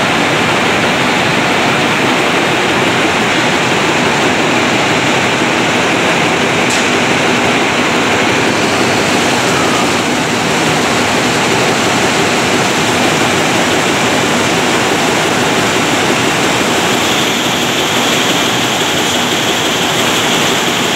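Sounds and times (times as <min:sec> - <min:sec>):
textile machine whirring hiss: 0:00.0 - 0:20.9.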